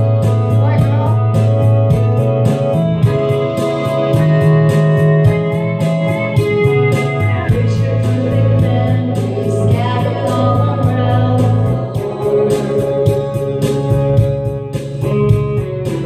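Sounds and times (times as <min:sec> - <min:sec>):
country-pop ballad backing track: 0:00.0 - 0:16.0
woman singing into microphone: 0:07.4 - 0:14.3.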